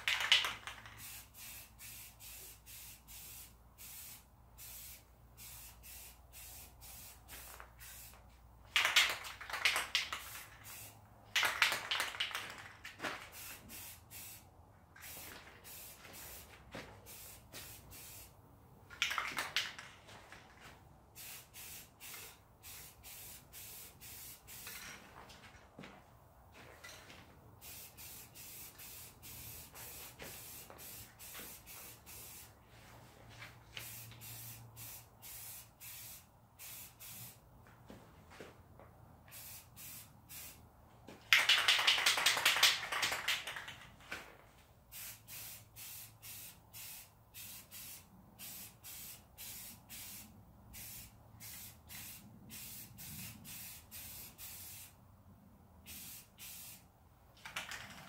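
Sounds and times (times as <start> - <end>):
aerosol can rattle: 0.0 - 1.5, 8.7 - 13.9, 18.9 - 20.0, 41.3 - 44.0, 57.4 - 58.0
aerosol can spraying: 0.0 - 8.2, 8.8 - 12.4, 17.1 - 18.3, 27.6 - 32.6, 33.8 - 37.4, 39.3 - 40.6, 44.9 - 55.0, 55.9 - 56.8.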